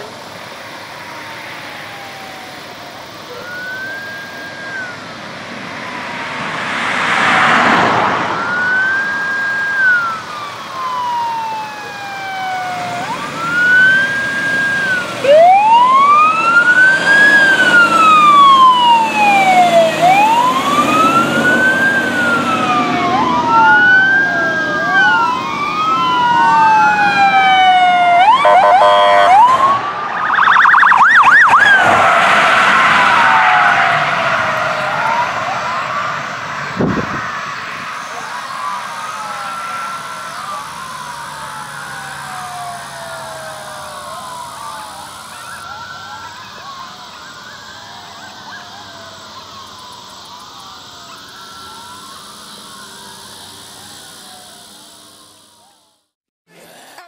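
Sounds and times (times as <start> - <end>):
rapid warbling siren sweeps: 0.0 - 56.0
sirens wailing: 0.0 - 56.2
loud rush of noise: 3.8 - 45.6.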